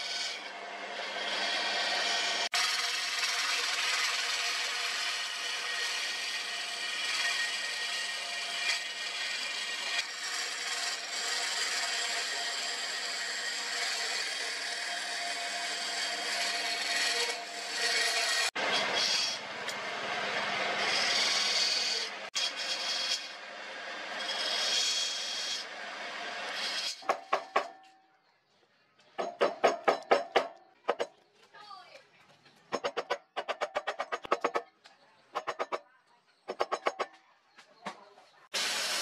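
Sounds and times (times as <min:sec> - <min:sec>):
chisel scraping wood on lathe: 0:08.7 - 0:15.1, 0:15.8 - 0:19.3, 0:20.8 - 0:23.3, 0:32.7 - 0:34.6, 0:35.4 - 0:35.8, 0:36.5 - 0:37.1.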